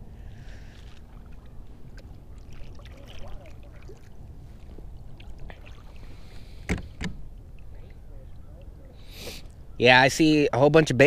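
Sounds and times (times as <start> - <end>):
paddle strokes in water: 0.3 - 7.0
water drips and splashes: 0.7 - 6.5.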